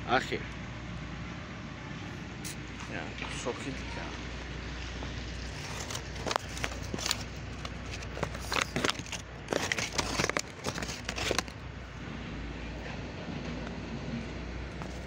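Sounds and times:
paper napkin crinkling: 5.3s - 11.6s.

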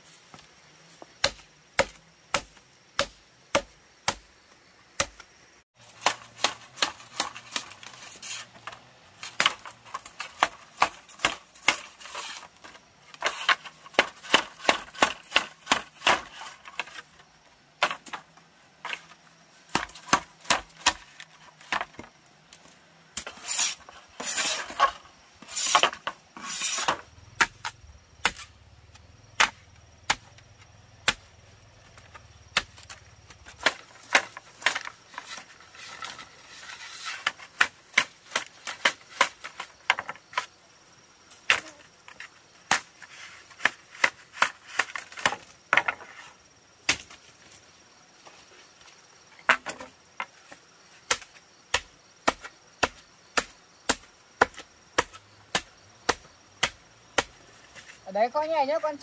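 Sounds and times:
scraping rustling noise: 5.8s - 14.7s, 22.6s - 27.1s, 33.4s - 37.6s, 42.0s - 45.2s
sharp tool strikes: 25.6s - 28.5s.

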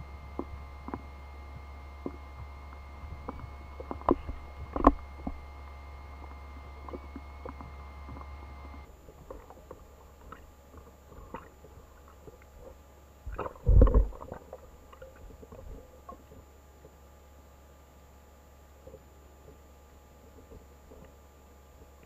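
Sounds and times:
underwater clicks and pops: 0.3s - 5.4s.

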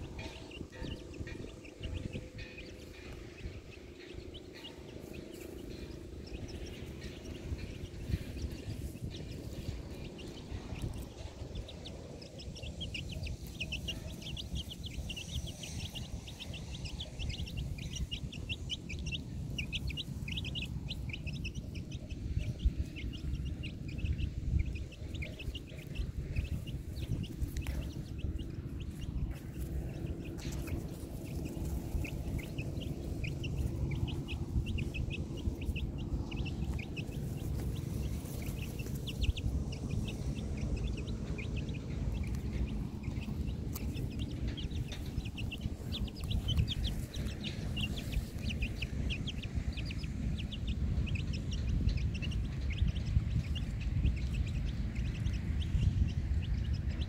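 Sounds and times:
birds chirping: 0.0s - 57.0s
low rumble: 0.0s - 57.0s.

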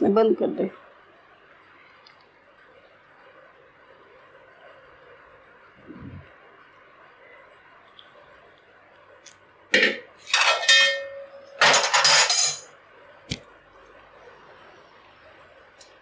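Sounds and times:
pot and utensils clanking: 9.8s - 12.7s.

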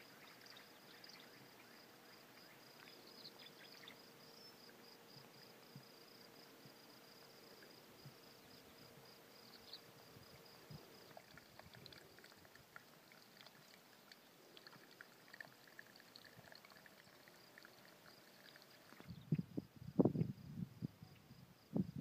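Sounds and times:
water trickling and dripping: 10.2s - 19.1s
small water splashes: 10.9s - 19.1s
high insect trill: 14.8s - 20.6s.

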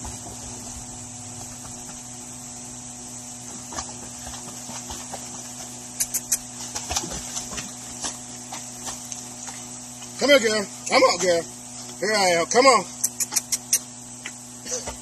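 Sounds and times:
steady low hum: 0.0s - 15.0s
dog splashing in water: 3.7s - 10.1s.

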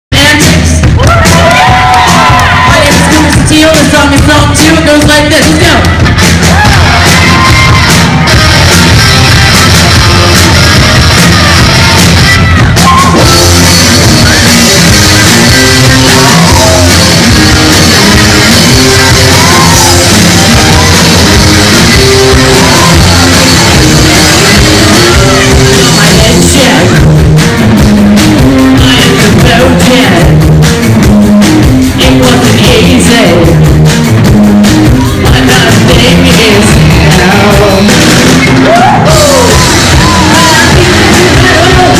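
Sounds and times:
electric bass: 0.0s - 41.9s
drum kit: 0.1s - 41.9s
electric guitars: 5.4s - 41.9s.

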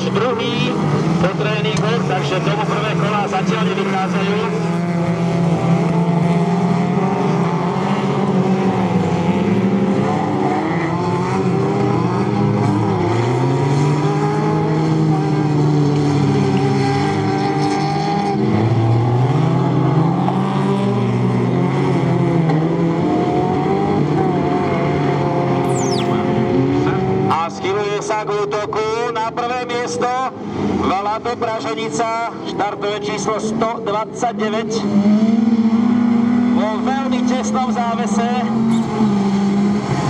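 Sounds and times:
race car engines revving: 0.0s - 25.6s, 26.2s - 40.0s.

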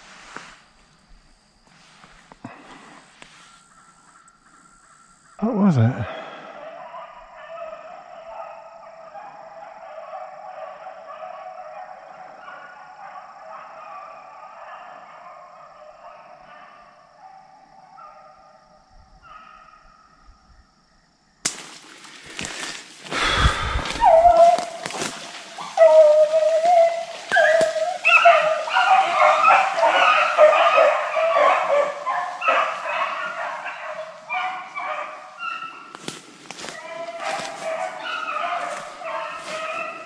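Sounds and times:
distant hounds baying: 1.8s - 20.4s, 23.1s - 40.0s
dog whining close by: 23.9s - 25.0s, 25.6s - 31.5s.

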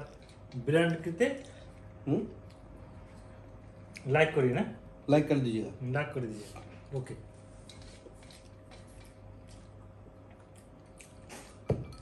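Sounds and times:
electrical hum: 0.0s - 12.0s
eating by hand from metal plate: 7.5s - 12.0s.

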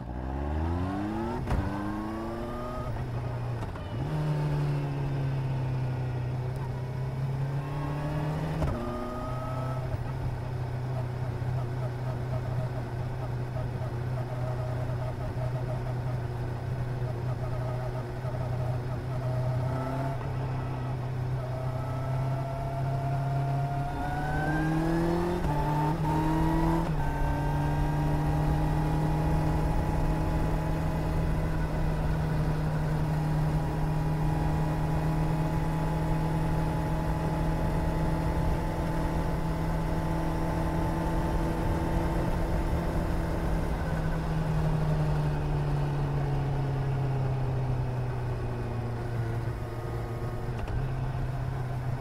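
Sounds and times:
motorcycle engine revving: 18.6s - 47.8s.

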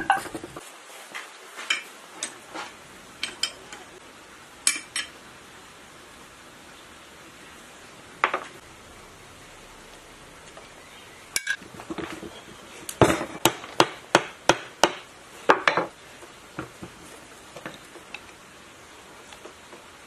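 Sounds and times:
metal clunk: 0.0s - 0.6s.

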